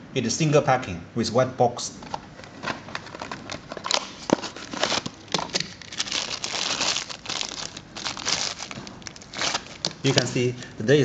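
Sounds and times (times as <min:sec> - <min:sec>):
plastic bag crinkling: 0:02.6 - 0:10.3.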